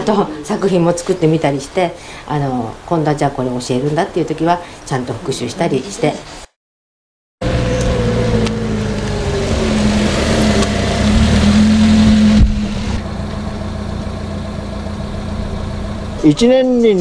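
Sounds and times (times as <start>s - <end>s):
small truck engine running: 7.4s - 16.5s.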